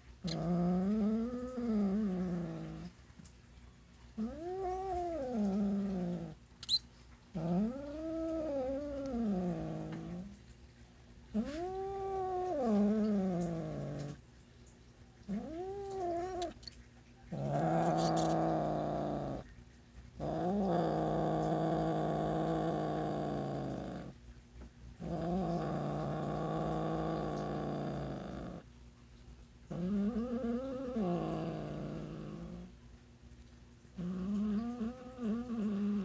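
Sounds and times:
cat yowling: 15.3s - 16.6s.

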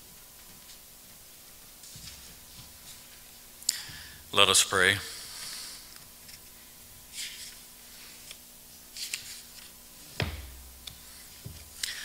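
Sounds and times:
paper rustling: 7.1s - 9.7s
low thump: 10.2s - 10.7s.

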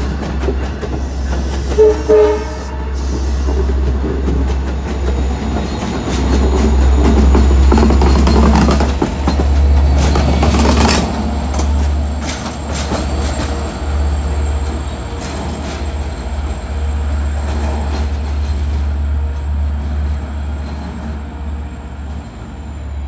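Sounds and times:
diesel locomotive passing: 0.0s - 23.0s
wheels clicking over rail joints: 3.1s - 16.5s.

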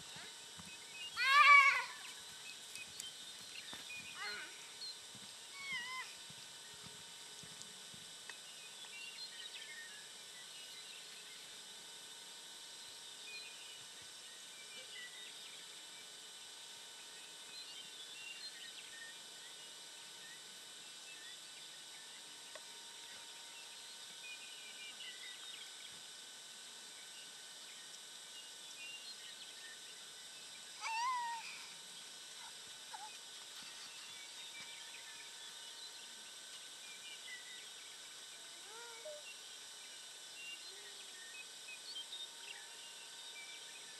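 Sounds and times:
faint hum: 0.0s - 43.9s
animal call: 1.2s - 2.1s, 5.5s - 6.2s, 30.8s - 31.8s, 32.4s - 33.2s
faint bird chirps: 5.6s - 6.8s, 27.8s - 35.9s, 36.9s - 43.9s.

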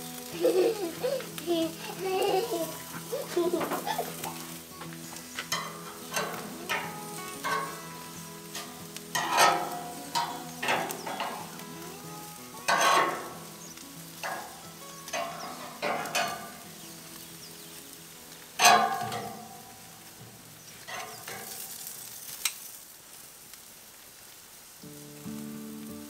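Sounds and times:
sausages and bacon sizzling on grill: 0.0s - 26.0s
steel tongs clacking and scraping: 5.4s - 7.8s, 8.5s - 11.7s, 12.6s - 13.4s, 14.1s - 16.7s, 18.6s - 19.9s, 20.8s - 22.6s.

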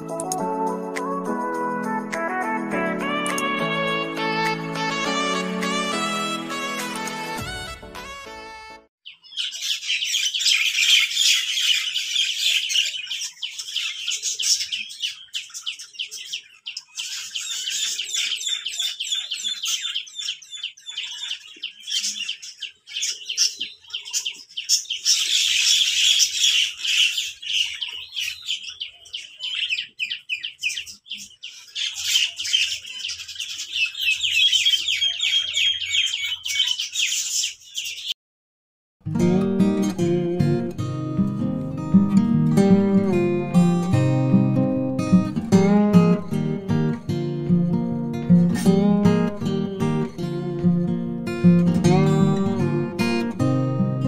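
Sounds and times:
small birds chirping: 9.0s - 38.2s.

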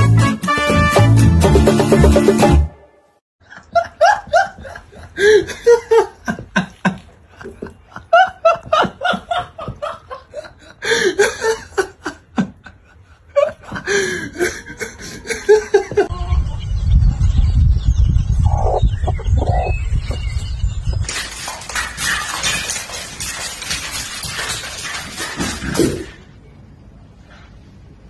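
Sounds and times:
person laughing: 3.6s - 12.6s, 13.4s - 16.4s.

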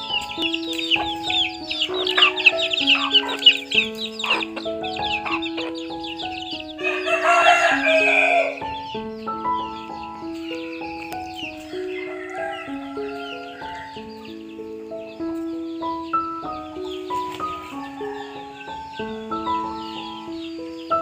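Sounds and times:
slow instrumental melody: 0.0s - 21.0s
small birds chirping: 0.0s - 21.0s
rooster crowing: 0.9s - 5.8s, 6.7s - 8.7s, 11.7s - 14.1s, 17.5s - 19.1s.

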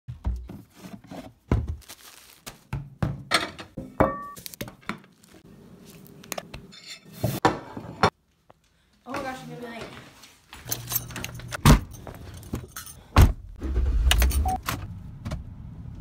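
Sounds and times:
packaging rustling: 1.8s - 2.7s.

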